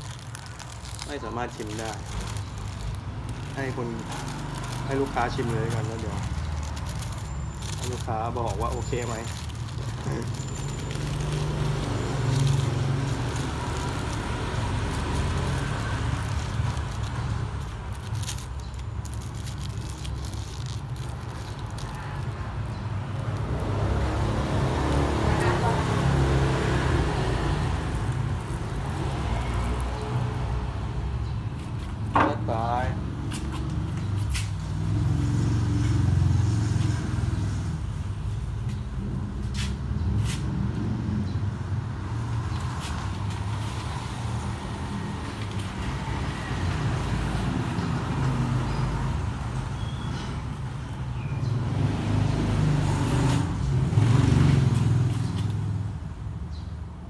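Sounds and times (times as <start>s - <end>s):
scraping and crackling of husk: 0.0s - 30.5s
vehicle engine rumbling: 0.0s - 56.4s.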